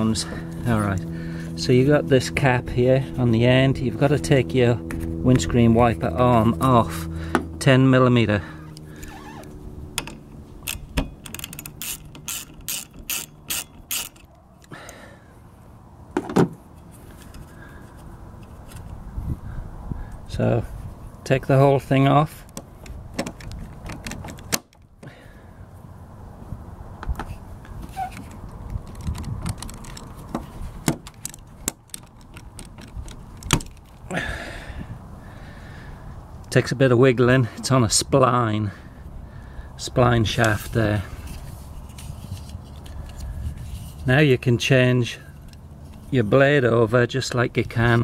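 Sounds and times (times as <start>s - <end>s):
ratchet wrench clicking: 10.0s - 14.8s
wiper arm clicks and knocks: 28.2s - 34.0s.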